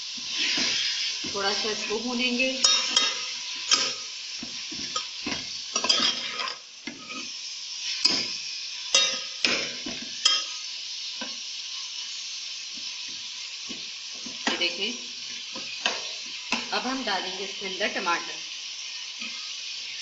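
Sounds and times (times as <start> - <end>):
meat sizzling in hot oil: 0.0 - 20.0
metal spatula scraping pot: 2.6 - 4.1, 5.8 - 7.3.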